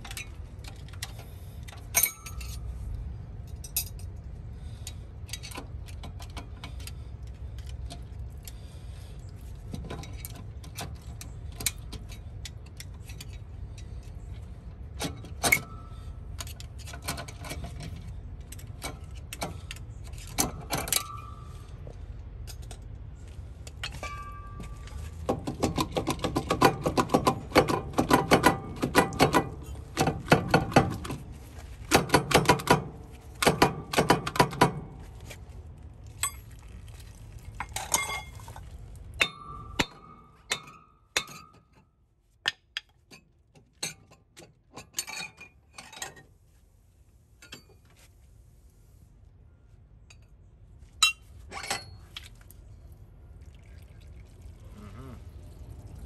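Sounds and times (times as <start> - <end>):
metal wheel hub clanking: 1.8 - 2.6, 15.0 - 21.7, 23.7 - 31.2, 37.6 - 41.8.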